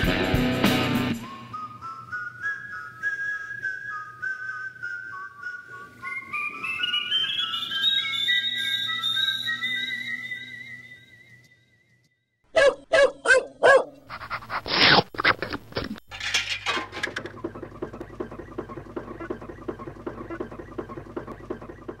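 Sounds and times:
dog barking: 12.5 - 14.0
fast rhythmic clatter: 16.1 - 22.0.

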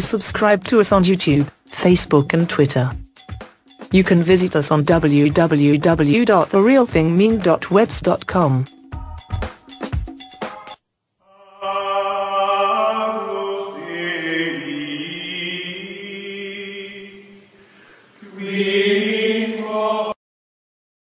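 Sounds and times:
choir chanting held notes: 11.3 - 17.6, 18.2 - 20.2.

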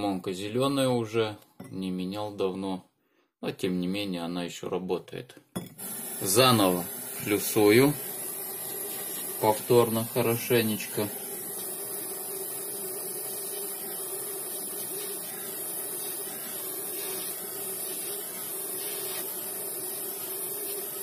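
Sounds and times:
steady hissing noise: 5.7 - 21.0.

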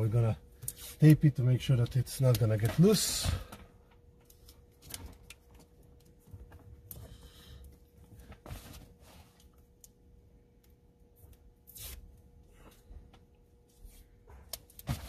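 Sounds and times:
thin steady hum: 0.0 - 15.0
tape handling clicks and crackles: 1.7 - 7.0.

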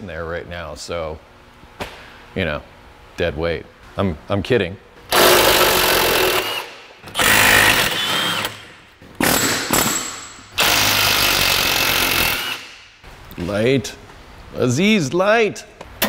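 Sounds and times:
handheld power tool bursts: 5.1 - 12.8.

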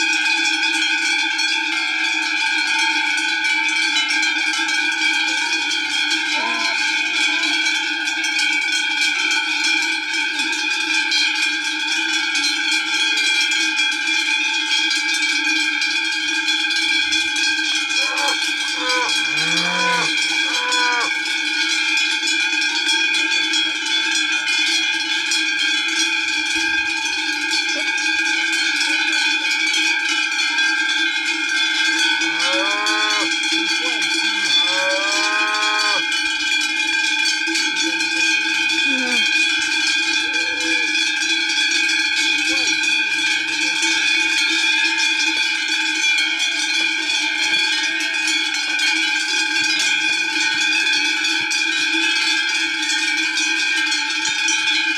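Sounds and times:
cowbells jangling: 0.0 - 54.9
cows mooing: 6.3 - 7.7, 17.9 - 21.2, 32.2 - 36.2, 38.8 - 39.4, 40.2 - 41.0.

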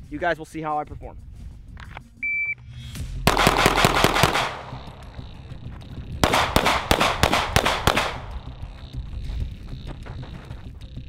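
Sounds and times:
pistol shots: 3.3 - 5.3, 6.2 - 8.5.

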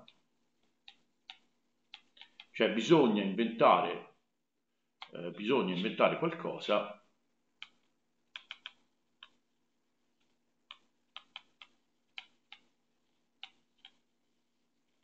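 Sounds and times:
stylus tapping on tablet screen: 0.0 - 2.5, 7.5 - 15.0.

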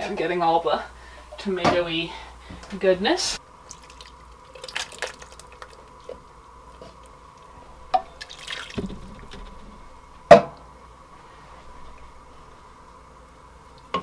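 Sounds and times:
water dripping into pot: 3.6 - 10.0
water pouring: 3.6 - 10.2.

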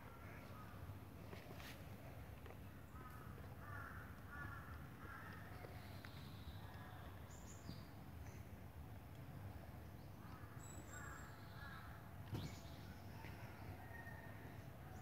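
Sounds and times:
birds chirping: 2.4 - 8.5.

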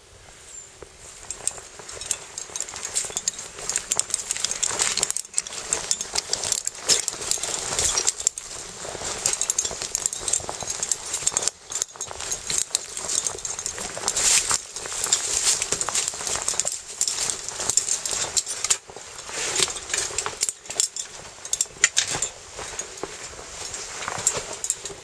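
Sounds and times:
footsteps crunching on rubble: 0.9 - 25.0
dry leaves rustling: 1.0 - 25.0
small stones clinking: 1.2 - 23.4.

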